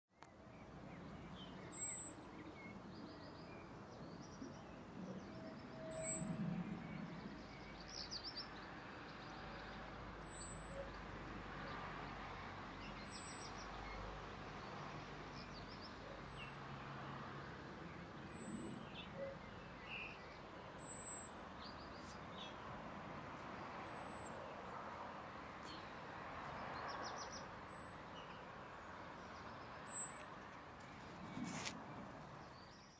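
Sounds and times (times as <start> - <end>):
blackbird high-pitched call: 1.7 - 2.2, 5.8 - 6.4, 10.2 - 11.0, 13.0 - 13.7, 16.2 - 16.6, 18.3 - 20.2, 20.8 - 21.4, 23.8 - 24.4, 27.7 - 28.4, 29.8 - 30.3.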